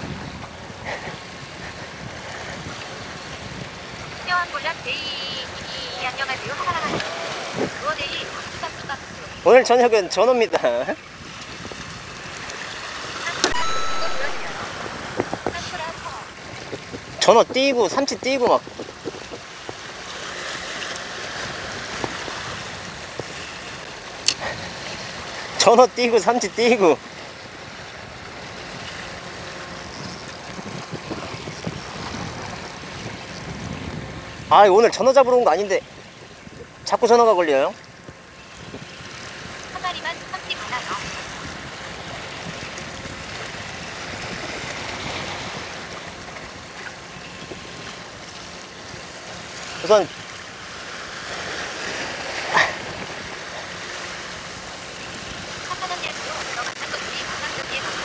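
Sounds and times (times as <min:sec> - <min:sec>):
wind against microphone: 0:00.0 - 0:13.8, 0:14.4 - 0:25.6, 0:27.0 - 0:58.0
sea water washing against rocks: 0:14.6 - 0:35.0, 0:47.5 - 0:58.0.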